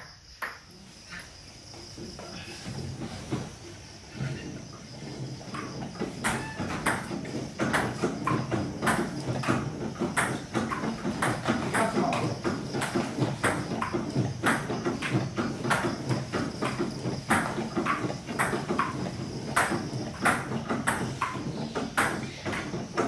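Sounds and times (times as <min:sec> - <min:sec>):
elliptical trainer clatter: 0:03.1 - 0:23.0
table tennis ball knocking: 0:05.5 - 0:23.0.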